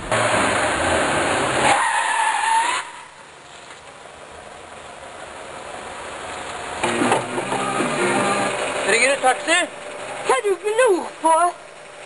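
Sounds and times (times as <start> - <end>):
tyre squeal: 1.6 - 3.2
car passing: 4.6 - 11.2.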